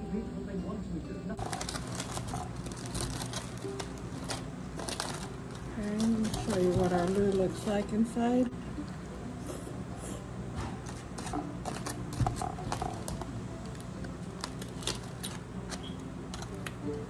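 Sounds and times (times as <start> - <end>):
aluminium foil crinkling: 1.4 - 8.4, 10.8 - 16.8.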